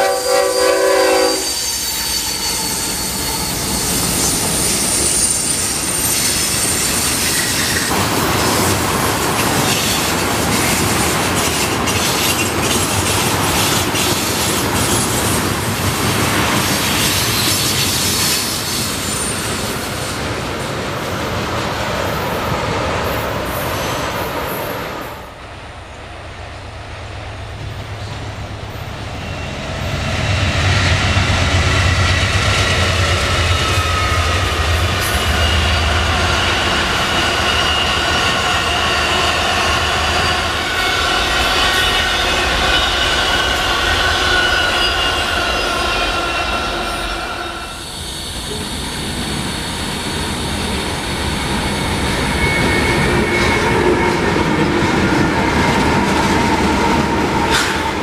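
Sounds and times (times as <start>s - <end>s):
high-pitched wheel squeal: 0.0s - 7.9s, 33.4s - 48.8s, 52.1s - 54.3s
diesel locomotive engine hum: 0.0s - 58.0s
freight train rolling past: 0.0s - 58.0s
clattering train wheels: 0.8s - 24.5s, 48.0s - 58.0s.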